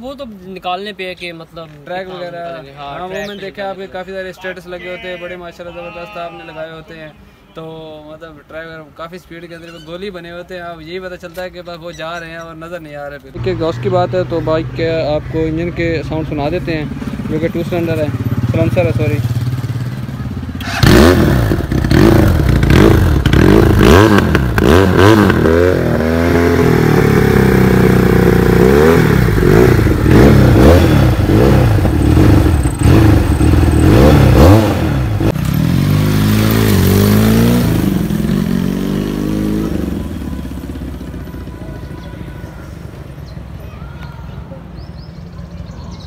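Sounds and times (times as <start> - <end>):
motorcycle engine revving and idling: 13.4 - 43.6.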